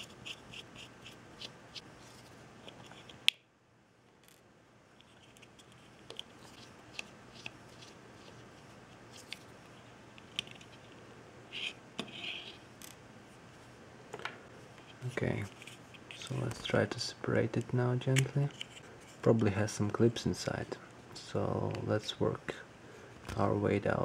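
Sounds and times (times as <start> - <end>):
handling scrapes: 5.0 - 12.7, 14.6 - 16.8, 18.4 - 19.3.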